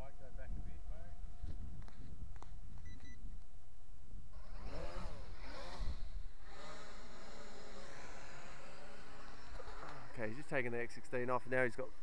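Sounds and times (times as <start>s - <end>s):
wind rumble on microphone: 0.0s - 3.5s, 4.1s - 6.4s
short beep: 2.8s - 3.2s
quadcopter motors buzzing: 4.3s - 12.0s.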